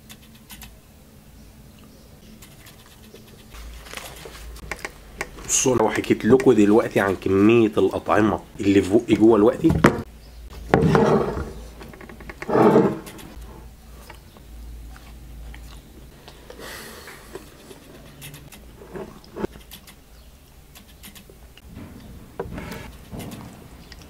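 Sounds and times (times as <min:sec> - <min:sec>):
small clicks: 0:00.0 - 0:00.8
chewing: 0:13.1 - 0:20.0.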